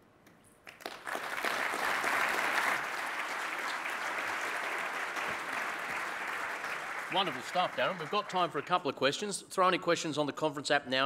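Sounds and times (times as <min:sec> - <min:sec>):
audience applauding: 0:00.7 - 0:08.9.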